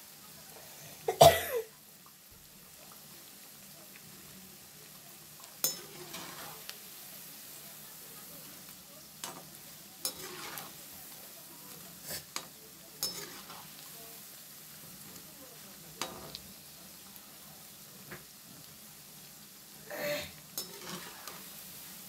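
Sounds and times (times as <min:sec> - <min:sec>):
pakoras sizzling in hot oil: 0:00.0 - 0:22.0
slotted spoon clinking against pan: 0:05.6 - 0:06.3, 0:13.0 - 0:13.5.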